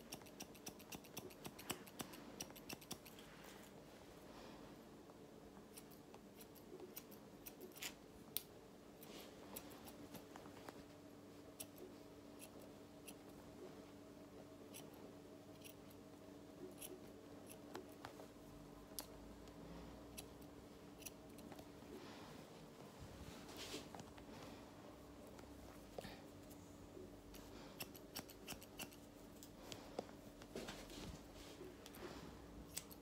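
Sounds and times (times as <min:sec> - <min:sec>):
scissors snipping hair: 0:00.0 - 0:03.2, 0:05.7 - 0:08.5, 0:11.6 - 0:13.4, 0:14.7 - 0:16.0, 0:16.6 - 0:18.0, 0:18.9 - 0:19.2, 0:27.4 - 0:29.6, 0:32.6 - 0:33.0.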